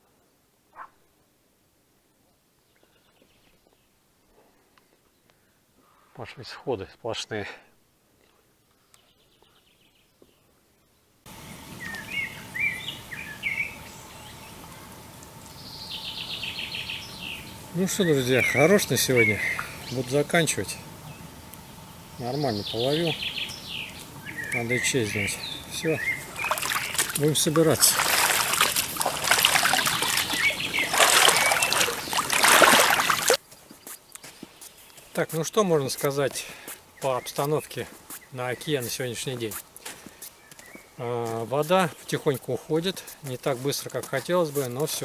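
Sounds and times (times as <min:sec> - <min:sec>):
outdoor background noise: 0:00.0 - 0:45.0
songbirds singing: 0:02.6 - 0:04.0, 0:08.8 - 0:45.0
bird chirps: 0:11.8 - 0:14.6, 0:15.5 - 0:20.2, 0:22.2 - 0:28.6, 0:29.2 - 0:35.2
water splashing: 0:26.2 - 0:33.4.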